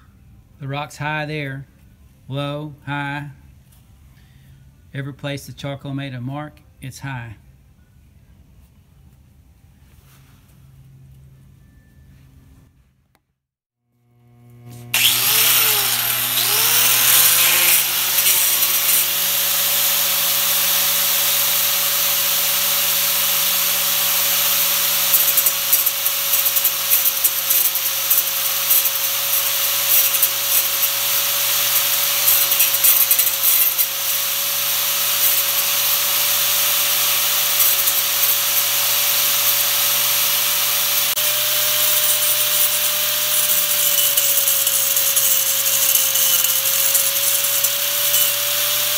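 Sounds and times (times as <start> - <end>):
angle grinder motor whine: 14.0 - 48.9
gritty hiss of stone grinding: 15.0 - 19.2, 25.0 - 48.8.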